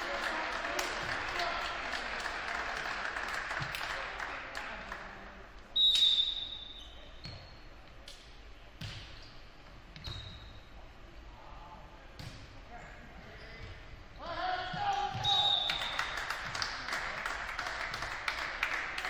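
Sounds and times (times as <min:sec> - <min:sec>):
applause: 0:00.0 - 0:05.2, 0:15.6 - 0:19.0
referee's whistle blast: 0:05.8 - 0:06.8.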